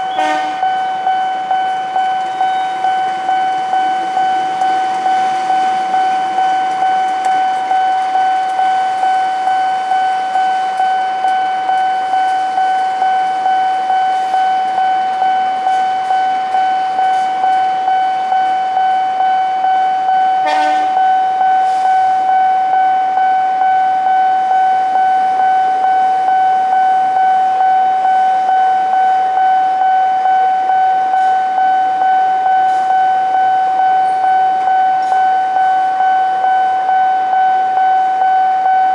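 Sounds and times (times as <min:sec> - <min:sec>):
train coaches passing: 0:00.0 - 0:18.8
train horn toot: 0:00.1 - 0:00.8, 0:20.4 - 0:21.1.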